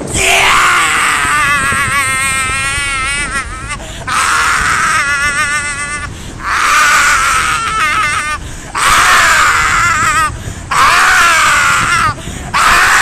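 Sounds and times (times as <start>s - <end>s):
man screaming: 0.0s - 13.0s
short breaths: 6.1s - 6.4s, 8.4s - 8.8s, 10.3s - 10.7s, 12.2s - 12.6s.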